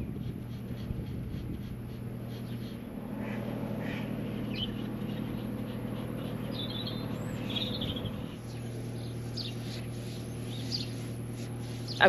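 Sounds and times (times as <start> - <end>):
low mechanical hum: 0.0 - 12.0
small birds chirping: 0.0 - 12.0.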